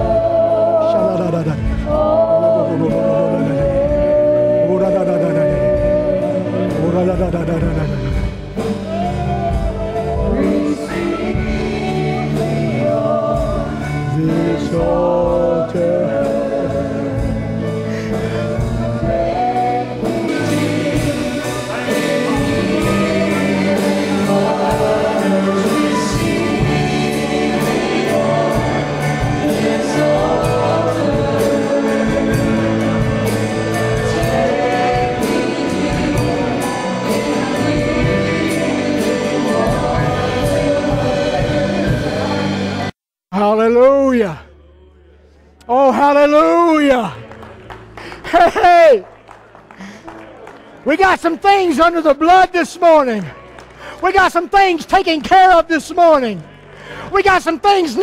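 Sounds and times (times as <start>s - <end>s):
group of voices singing: 0.0s - 42.9s
instrumental accompaniment: 0.0s - 42.9s.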